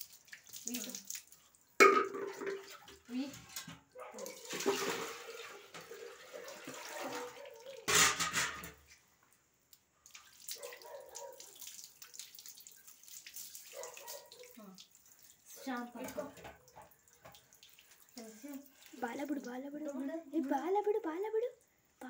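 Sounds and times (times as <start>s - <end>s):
water splashing and pouring: 0.0s - 3.6s, 4.2s - 8.8s, 10.1s - 20.7s.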